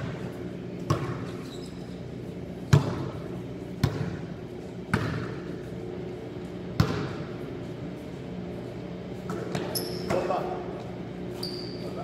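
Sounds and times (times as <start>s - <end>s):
basketball bouncing on gym floor: 0.0s - 1.7s, 2.6s - 5.7s, 6.7s - 7.4s
steady low hum: 0.0s - 12.0s.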